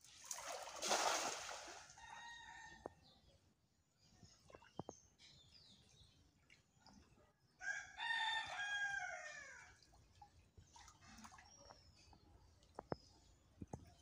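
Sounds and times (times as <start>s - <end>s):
rooster crowing: 7.7s - 9.6s.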